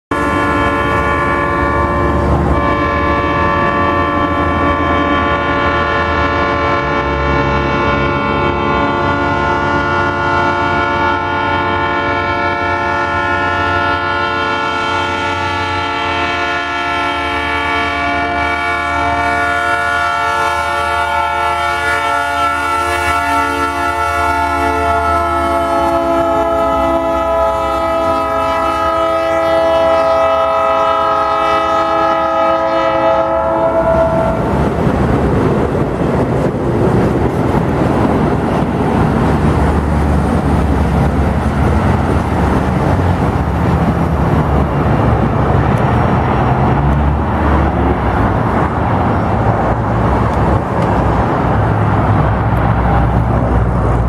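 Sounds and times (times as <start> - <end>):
locomotive air horn: 0.1 - 34.5
diesel engines rumbling: 0.1 - 54.0.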